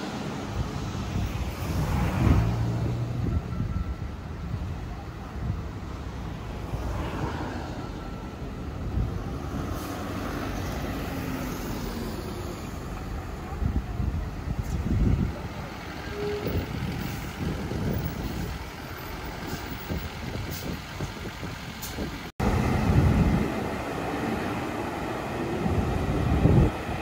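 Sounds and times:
bus diesel engine: 0:00.0 - 0:27.0
passing street traffic: 0:00.0 - 0:27.0
wind rumble on microphone: 0:00.4 - 0:06.0, 0:13.4 - 0:15.7, 0:16.4 - 0:18.7, 0:19.6 - 0:23.9, 0:25.5 - 0:27.0.

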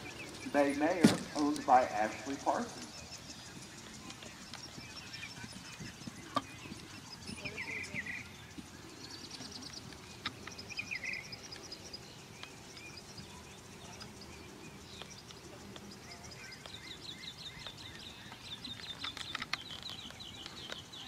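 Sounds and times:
songbirds chirping and trilling: 0:00.0 - 0:21.0
sharp clicks: 0:17.5 - 0:21.0.

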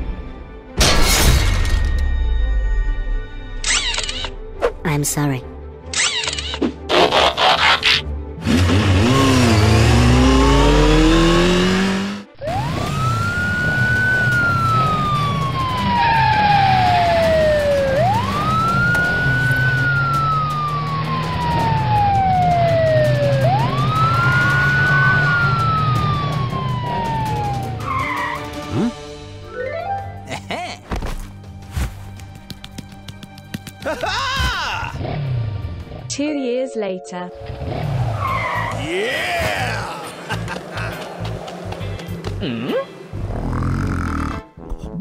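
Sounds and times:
noisy falling and rising tones: 0:08.8 - 0:27.8
siren wail: 0:09.1 - 0:11.8, 0:12.4 - 0:28.7.

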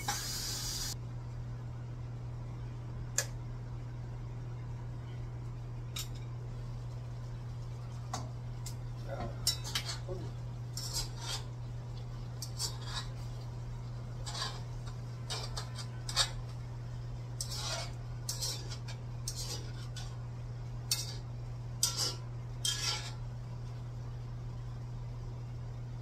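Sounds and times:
metal spoon scraping frying pan: 0:09.4 - 0:10.1, 0:10.7 - 0:11.6, 0:12.4 - 0:13.4, 0:14.2 - 0:16.6, 0:17.4 - 0:20.2, 0:20.8 - 0:23.3.

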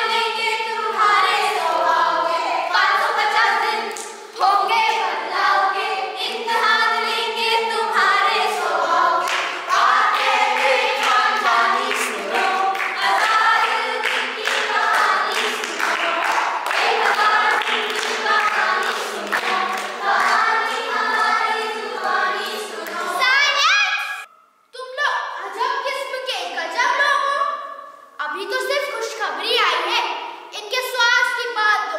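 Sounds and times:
children singing together: 0:00.0 - 0:23.6
hand claps: 0:09.2 - 0:21.4.

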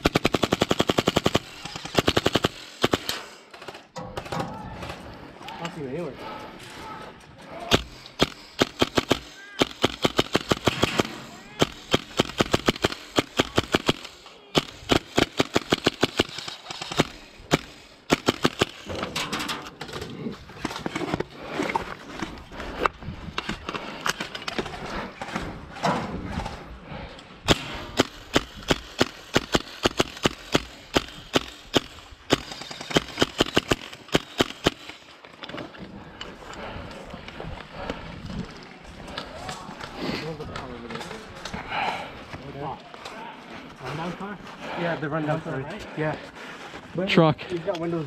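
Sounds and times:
airsoft guns firing: 0:00.0 - 0:04.4, 0:07.6 - 0:19.1, 0:27.4 - 0:35.1.

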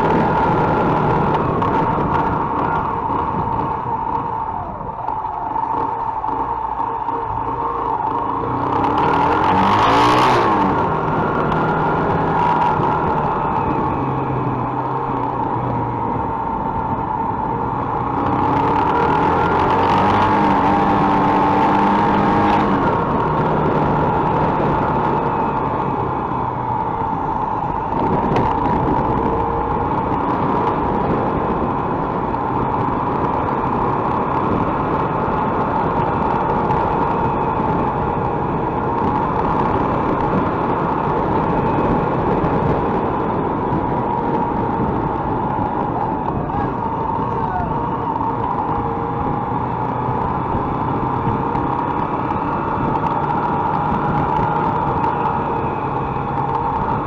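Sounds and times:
motorcycle engine running: 0:00.0 - 0:57.0
road and wind noise: 0:00.0 - 0:57.0.

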